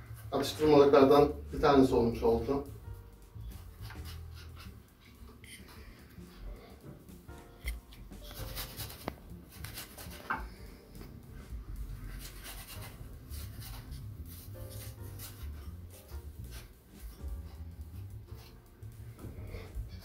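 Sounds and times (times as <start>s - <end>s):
utensil scraping in a pan: 3.6s - 6.8s, 7.6s - 18.6s.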